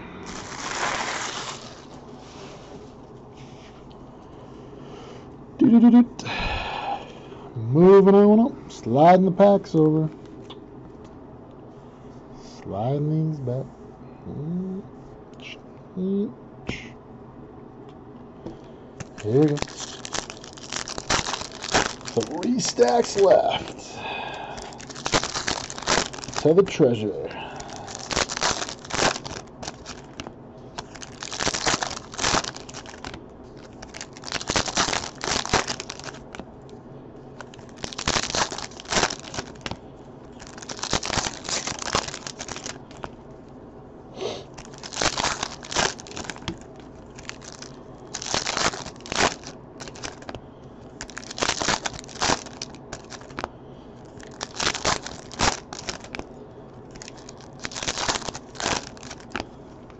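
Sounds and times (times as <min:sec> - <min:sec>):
foil wrappers tearing and crumpling: 0:00.3 - 0:02.6, 0:19.0 - 0:36.4, 0:37.4 - 0:43.2, 0:44.4 - 0:50.4, 0:51.0 - 0:56.3, 0:56.9 - 0:59.9.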